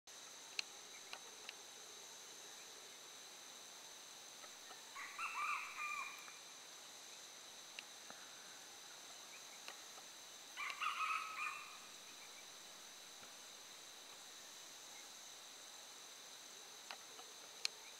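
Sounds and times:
crickets droning: 0.1s - 17.9s
rooster crowing: 4.9s - 6.3s, 10.6s - 11.8s.

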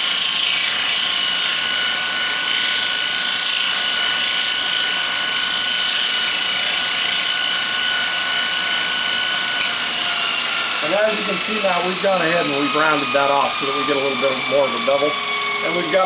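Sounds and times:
bench grinder whining: 0.0s - 16.0s.

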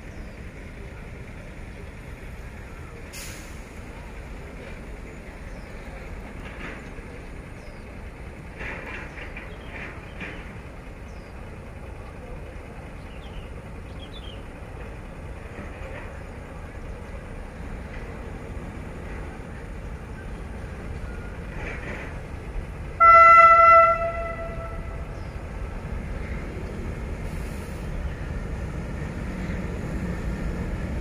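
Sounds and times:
low outdoor rumble: 0.0s - 31.0s
train horn blast: 23.0s - 25.2s.

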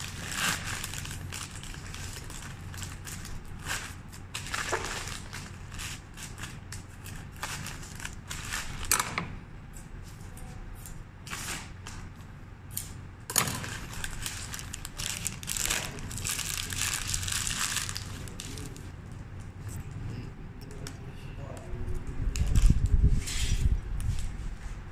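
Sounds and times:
wrapping paper rustling: 0.0s - 8.9s, 13.5s - 20.0s
low steady hum: 0.0s - 24.9s.

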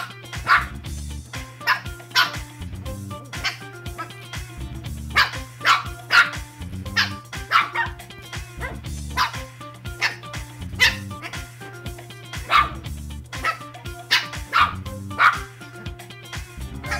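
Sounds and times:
puppies yapping and barking: 0.0s - 0.8s, 1.6s - 2.5s, 3.3s - 4.3s, 5.1s - 11.5s, 12.3s - 15.6s
background music: 0.0s - 16.9s.

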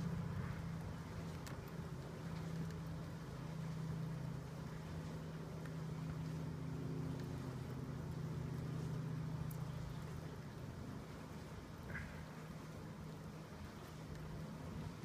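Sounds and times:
low machine hum: 0.0s - 15.0s
faint clicks: 1.2s - 3.0s, 9.4s - 10.1s, 13.8s - 14.4s.

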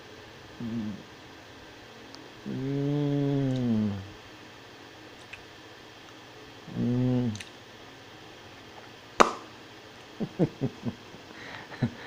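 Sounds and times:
man humming: 0.6s - 1.1s, 2.4s - 4.2s, 6.6s - 7.5s
man chuckling: 10.1s - 12.0s.

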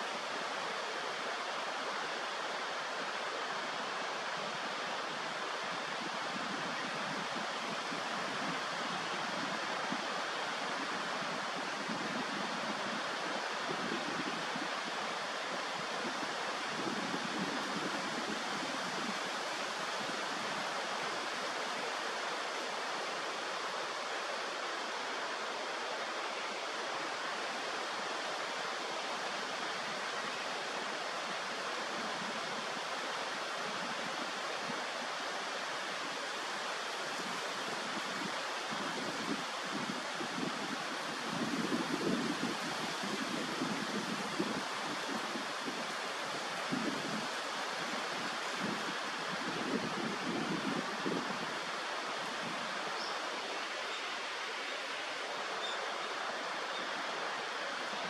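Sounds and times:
flowing water rushing: 0.0s - 58.0s.

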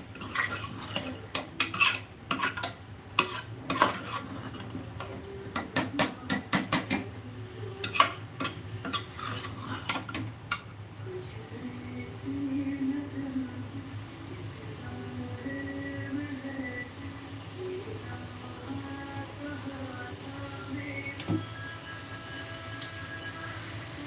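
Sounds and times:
spoon scraping and clinking in pot: 0.0s - 5.8s, 7.8s - 10.7s.

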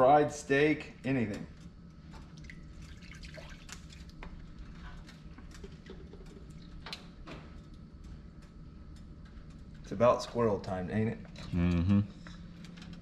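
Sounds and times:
wet clicks and drips: 1.3s - 9.9s
water pouring into gravy: 2.5s - 4.2s.

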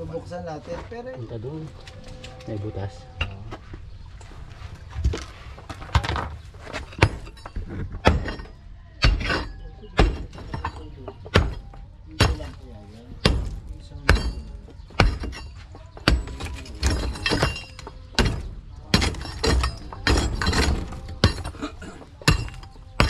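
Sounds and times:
pickaxe breaking concrete: 6.8s - 12.4s, 13.2s - 23.0s.

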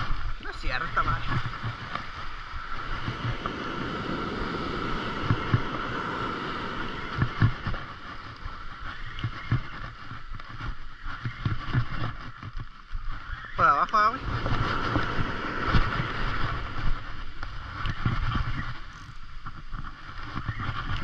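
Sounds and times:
surf washing: 0.0s - 21.0s
wind thumping on microphone: 0.0s - 21.0s.

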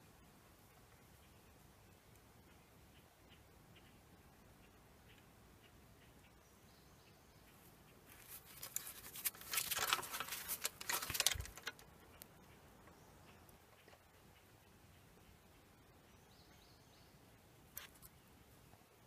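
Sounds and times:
rustling and scraping of soil: 8.0s - 12.3s, 17.7s - 18.2s.

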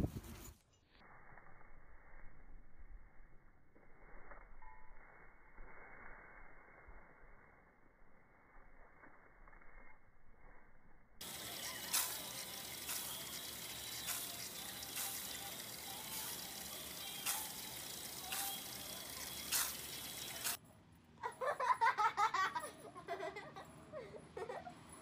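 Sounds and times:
fountain water splashing: 11.2s - 20.6s.

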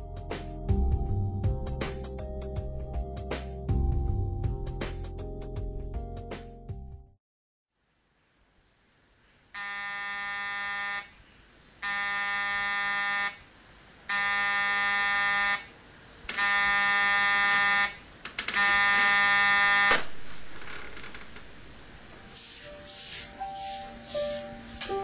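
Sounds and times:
alarm clock buzzer: 9.6s - 11.1s, 11.8s - 13.4s, 14.1s - 15.7s, 16.4s - 18.0s, 18.6s - 20.0s.

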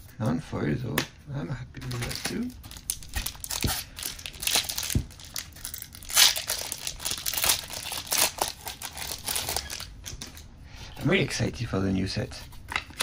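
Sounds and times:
foil wrapper crinkling: 1.9s - 10.4s.

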